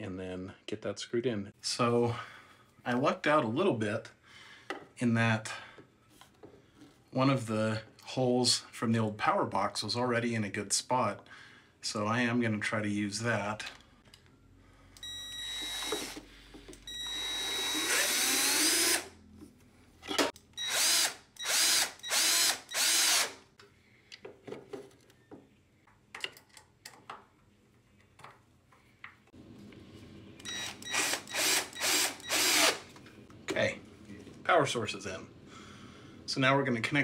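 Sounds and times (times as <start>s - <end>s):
cordless drill driving screws: 15.0s - 16.2s, 16.9s - 19.1s, 20.1s - 23.4s, 30.5s - 32.9s.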